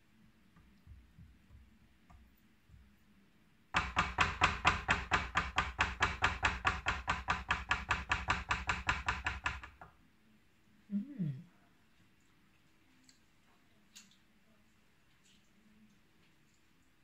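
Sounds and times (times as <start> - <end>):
rapid even sharp knocks: 3.7 - 9.9
faint small clatters: 12.0 - 17.0.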